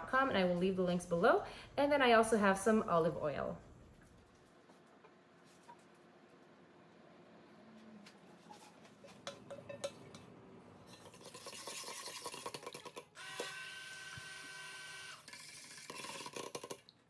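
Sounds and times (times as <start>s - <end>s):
metal clinking on stockpot: 9.3s - 10.2s
stick blender motor whining: 12.8s - 16.3s.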